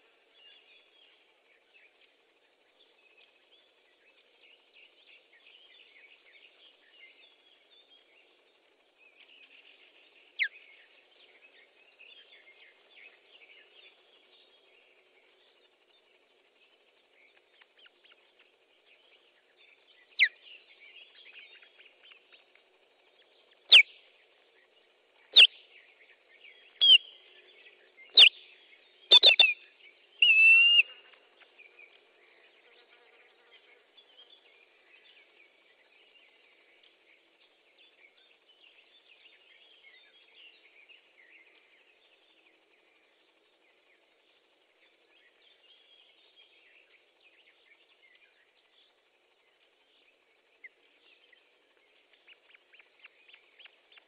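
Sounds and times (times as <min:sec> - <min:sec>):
small birds chirping: 0:00.0 - 0:54.0
osprey alarm calls: 0:29.1 - 0:29.6.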